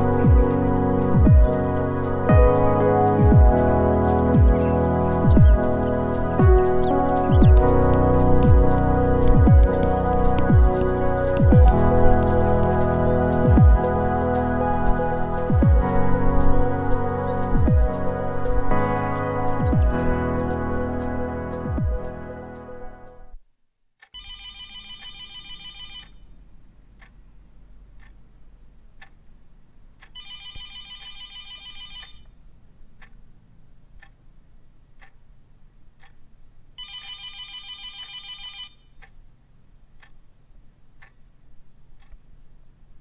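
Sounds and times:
faint ticking: 0.0 - 20.6, 26.0 - 31.2, 31.9 - 36.8, 38.8 - 43.0
soft music: 0.0 - 23.4
low room hum: 24.1 - 43.0
telephone ringing: 24.2 - 26.2, 30.2 - 32.2, 36.8 - 38.9.

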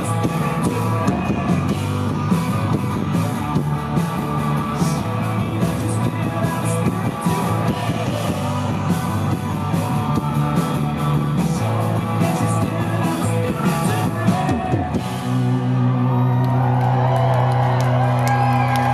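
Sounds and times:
person singing: 0.0 - 2.0, 4.2 - 9.4, 10.0 - 15.2
live rock band: 0.0 - 18.9.

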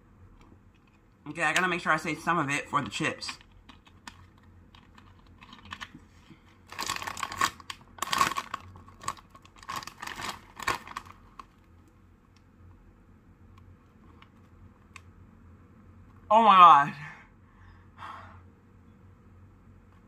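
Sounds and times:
chip bag crackling rustles: 6.6 - 11.6.

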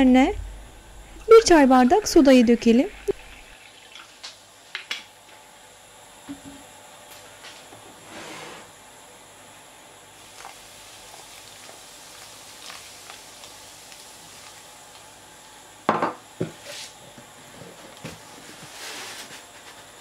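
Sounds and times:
soda water fizzing: 1.1 - 4.5, 10.2 - 15.2
glass set down on counter: 15.9 - 16.6.

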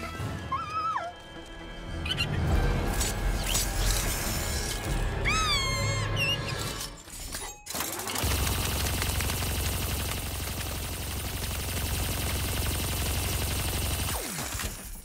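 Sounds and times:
music: 0.0 - 8.2
rat squealing: 5.2 - 6.8
squeak: 5.2 - 7.0.

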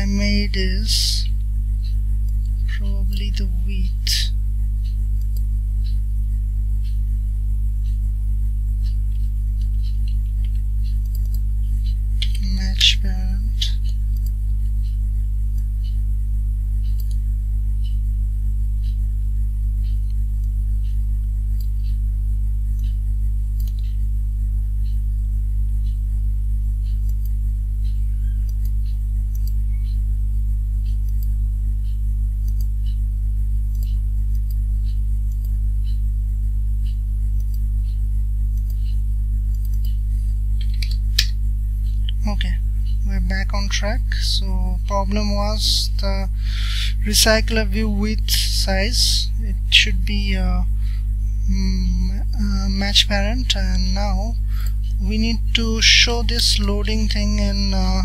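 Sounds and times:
electrical mains hum: 0.0 - 58.0
keyboard and mouse clicks: 8.8 - 12.4, 40.6 - 41.4.

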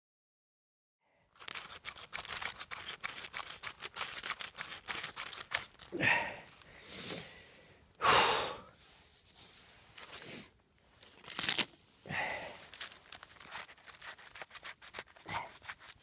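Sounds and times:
knife scraping ferrocerium rod: 1.4 - 6.0, 12.8 - 16.0
heavy breaths: 5.9 - 8.8, 12.0 - 12.9, 15.2 - 15.6.

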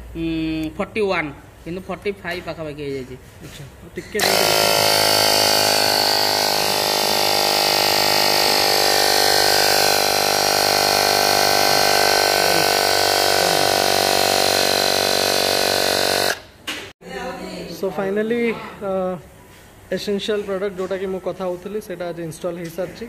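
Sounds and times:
electric air compressor running: 4.2 - 16.6.

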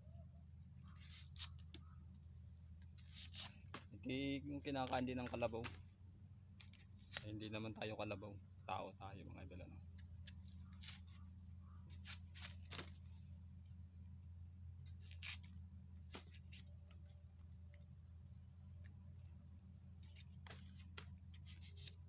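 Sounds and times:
high insect trill: 0.0 - 22.0
knife cutting plant stalk: 1.0 - 1.6, 6.6 - 7.3, 10.0 - 11.2, 15.0 - 15.5, 20.4 - 22.0.

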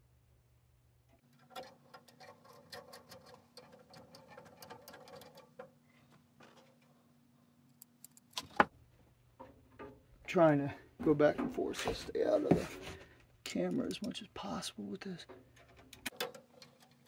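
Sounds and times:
screwdriver clicking and scraping metal: 1.3 - 5.7.

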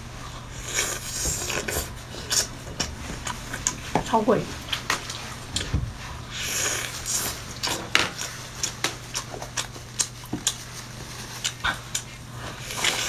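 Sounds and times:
mouth chewing sounds: 0.5 - 3.9, 6.3 - 13.0.

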